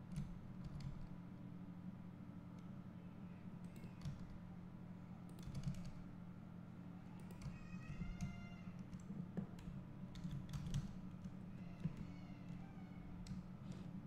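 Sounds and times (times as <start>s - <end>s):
keyboard typing and clicks: 5.3s - 6.0s, 8.9s - 12.6s.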